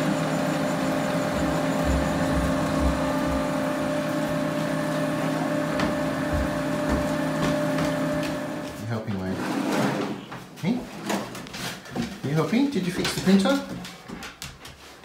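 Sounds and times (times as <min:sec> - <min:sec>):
printer motors and fans humming: 0:00.0 - 0:10.3.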